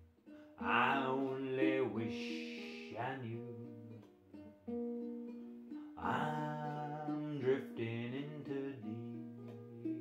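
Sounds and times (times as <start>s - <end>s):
ukulele picking: 0.0s - 10.0s
man singing long held notes: 0.6s - 4.0s, 6.0s - 10.0s.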